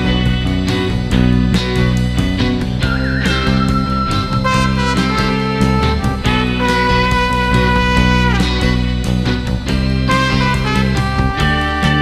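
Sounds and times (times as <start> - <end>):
instrumental music with steady beat: 0.0 - 12.0.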